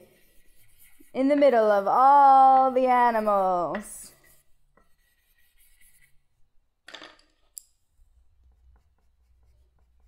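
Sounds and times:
pencil strokes on paper: 0:00.0 - 0:06.5, 0:08.0 - 0:10.0
pencil rattle and click on table: 0:02.5 - 0:04.2.

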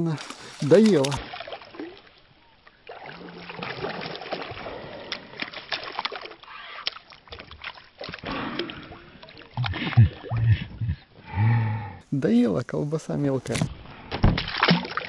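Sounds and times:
water splashing and sloshing: 0:00.0 - 0:11.3, 0:13.4 - 0:15.0
low man's voice: 0:09.6 - 0:13.7.

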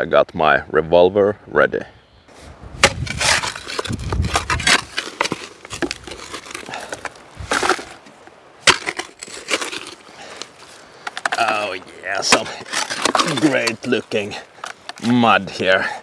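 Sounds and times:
shovel digging into soil: 0:02.8 - 0:08.0, 0:08.6 - 0:10.5, 0:11.2 - 0:15.2.

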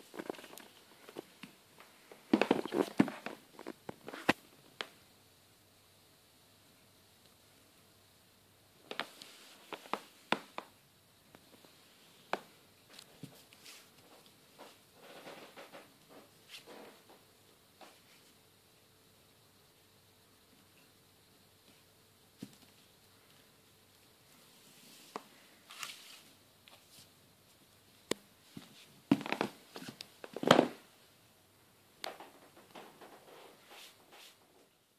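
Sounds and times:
scraping and rustling: 0:00.0 - 0:04.4, 0:12.9 - 0:17.2.

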